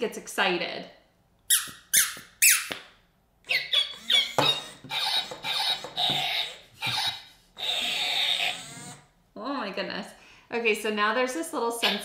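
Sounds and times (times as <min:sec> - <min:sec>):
rubbery squeaky noises: 0:01.5 - 0:02.8, 0:03.5 - 0:09.1
toy dog yapping from speaker: 0:01.5 - 0:02.8, 0:03.5 - 0:09.0, 0:11.8 - 0:12.0
toy squeaking: 0:01.5 - 0:02.8, 0:03.5 - 0:09.0, 0:11.8 - 0:12.0.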